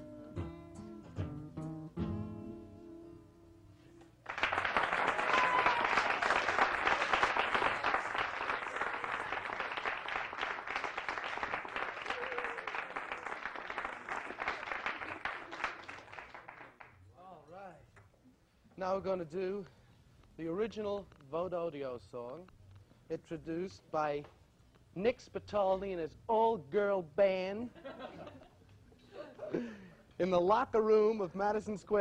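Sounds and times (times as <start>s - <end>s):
audience applauding: 4.2s - 17.0s.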